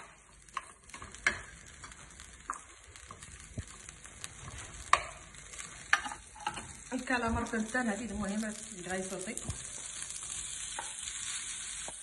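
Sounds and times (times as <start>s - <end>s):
wooden spoon scraping a pan: 0.0s - 7.7s
faint sizzle: 0.0s - 12.0s.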